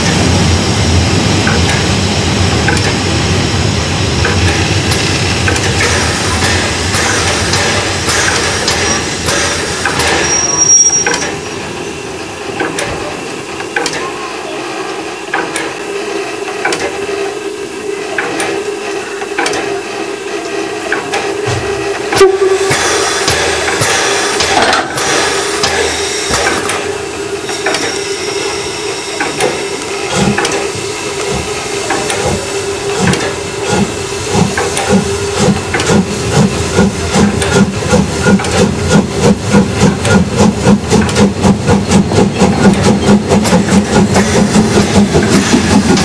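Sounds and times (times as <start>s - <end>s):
train wheels rumbling on track: 0.0s - 46.0s
high wheel squeal: 8.7s - 9.2s, 10.0s - 11.4s.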